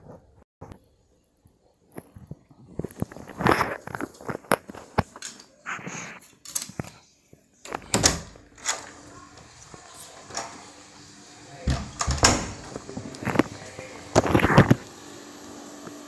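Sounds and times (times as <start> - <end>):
rustling handling noise: 1.8 - 7.0.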